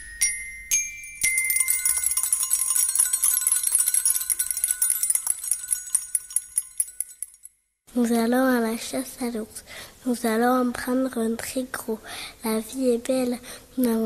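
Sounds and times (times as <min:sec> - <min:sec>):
tinkling tuned metal percussion: 0:00.0 - 0:07.6.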